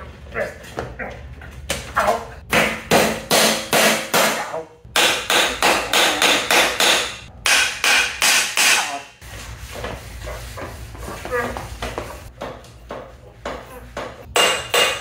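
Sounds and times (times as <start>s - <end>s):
hammer striking steel frame: 2.5s - 9.1s, 14.0s - 15.0s.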